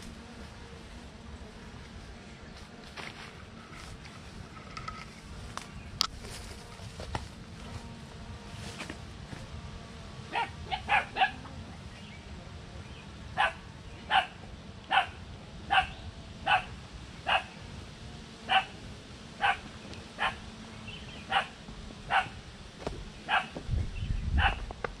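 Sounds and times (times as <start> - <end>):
dog barking: 10.3 - 11.4, 13.4 - 15.9, 16.5 - 16.7, 17.3 - 17.5, 18.5 - 18.7, 19.4 - 19.6, 20.2 - 20.4, 21.3 - 21.5, 22.1 - 22.4, 23.3 - 23.5, 24.4 - 24.6.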